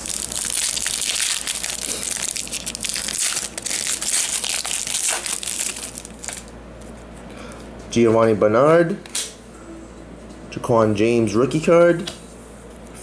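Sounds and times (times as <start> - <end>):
foil wrapper crinkling: 0.0 - 6.6.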